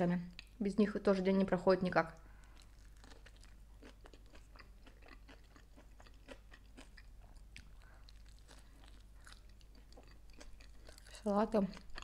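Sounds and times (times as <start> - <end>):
chewing crunchy sandwich: 2.3 - 12.0.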